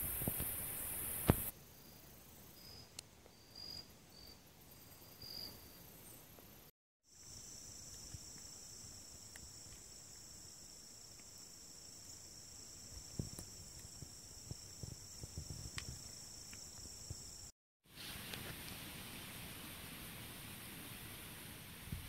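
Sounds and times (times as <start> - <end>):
insects trilling: 0.0 - 6.5, 7.1 - 17.5.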